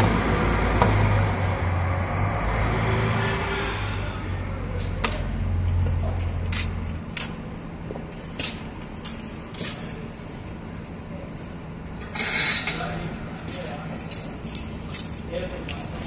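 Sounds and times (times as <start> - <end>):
metal tools clinking: 12.0 - 16.0.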